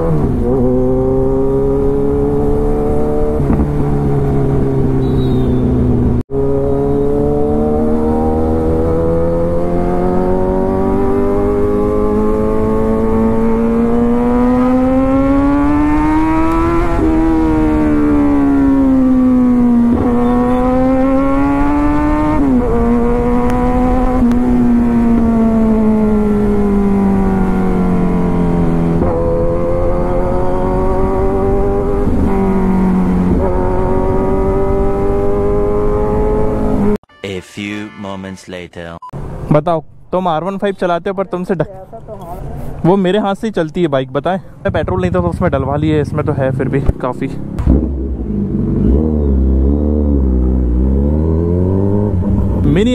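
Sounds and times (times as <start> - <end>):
motorcycle engine revving: 0.0 - 37.0, 45.0 - 52.9
wind noise: 2.2 - 6.2.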